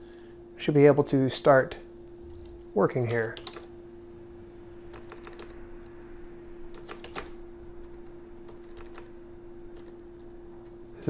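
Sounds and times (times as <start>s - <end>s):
keyboard typing clicks: 3.4s - 3.7s, 4.9s - 5.6s, 6.7s - 7.3s.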